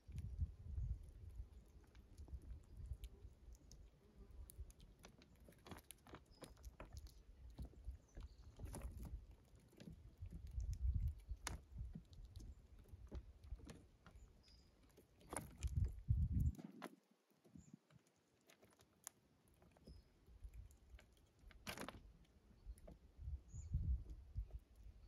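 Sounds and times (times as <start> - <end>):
small clicks and ticks: 0.0 - 23.1
squirrel chewing corn kernels: 0.0 - 25.0.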